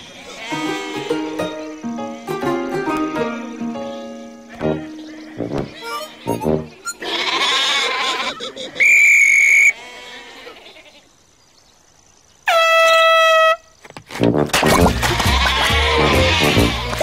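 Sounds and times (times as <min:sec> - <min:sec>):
sheep bleating: 0:00.1 - 0:01.2, 0:06.9 - 0:08.6, 0:09.7 - 0:11.0, 0:15.2 - 0:17.0
light music: 0:00.5 - 0:06.8, 0:14.3 - 0:17.0.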